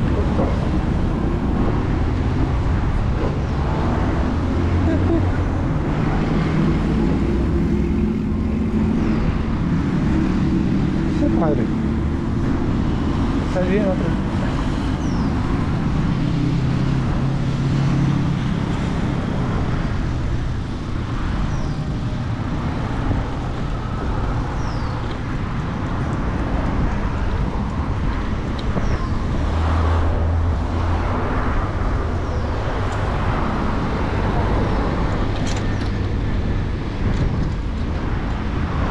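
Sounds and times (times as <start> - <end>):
cars going by: 0.0 - 38.9
vehicle engine hum: 0.0 - 38.9.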